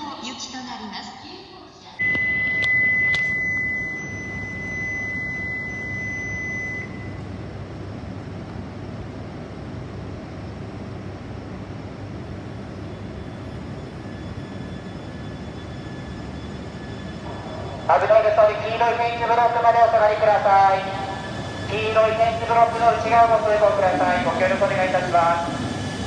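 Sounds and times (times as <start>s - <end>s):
train low rumble: 2.1s - 26.0s.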